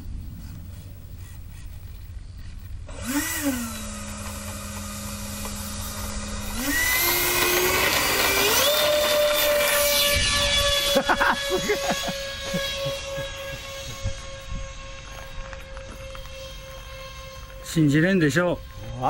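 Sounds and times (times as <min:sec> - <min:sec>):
electric ducted fan whine: 0:00.0 - 0:19.0.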